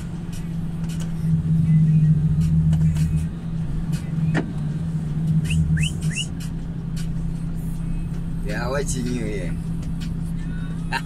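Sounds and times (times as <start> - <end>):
truck engine humming: 0.0 - 11.0
short rising chirps: 5.4 - 6.4.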